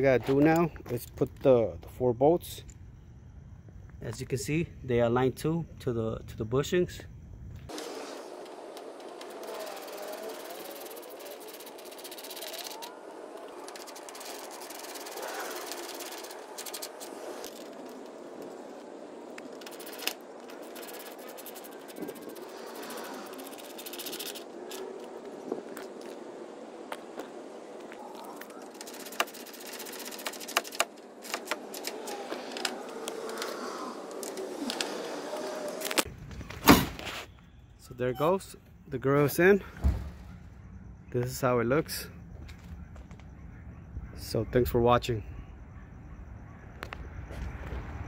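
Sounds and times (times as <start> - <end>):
small metal clicks and scrapes: 7.7 - 18.6, 19.3 - 25.2, 28.3 - 36.1.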